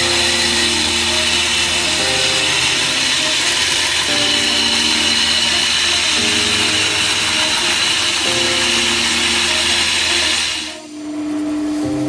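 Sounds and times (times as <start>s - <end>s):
belt grinder grinding steel: 0.0s - 10.8s
background music: 0.0s - 11.0s.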